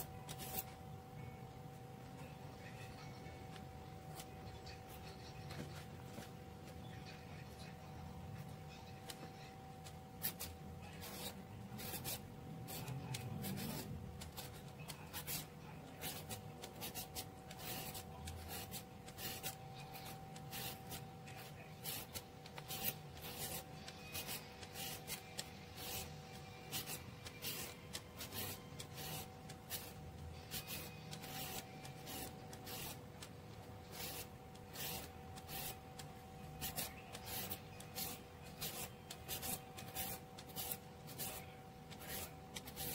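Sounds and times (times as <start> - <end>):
faint steady hum: 0.0 - 42.9
shredder rasping cucumber: 11.0 - 33.0, 33.9 - 35.8, 36.6 - 42.9.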